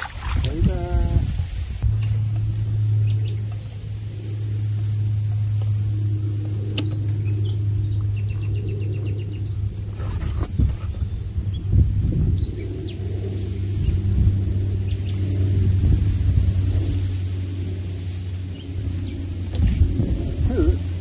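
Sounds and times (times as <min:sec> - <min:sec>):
low thumps and gusts: 0:00.0 - 0:21.0
small birds chirping: 0:00.0 - 0:21.0
steady low rumble: 0:00.0 - 0:21.0.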